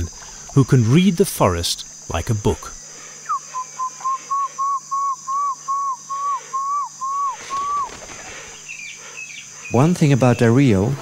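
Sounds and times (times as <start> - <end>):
man whistling animal call: 3.2 - 8.0.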